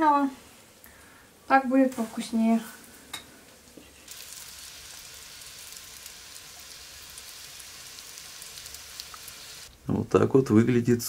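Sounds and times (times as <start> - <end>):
patties sizzling in a skillet: 4.0 - 9.8.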